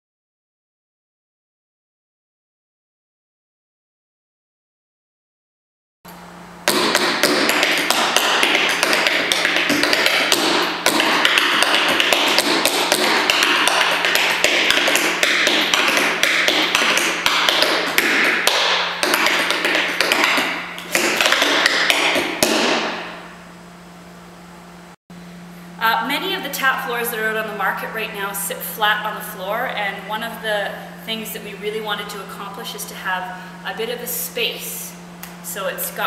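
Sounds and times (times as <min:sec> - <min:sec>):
tap shoes on wooden floor: 0:06.7 - 0:23.1.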